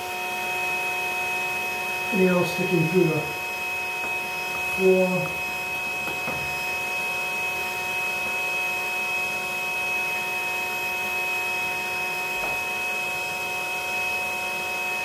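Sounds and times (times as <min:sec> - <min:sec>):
vacuum motor hum with whine: 0:00.0 - 0:15.0.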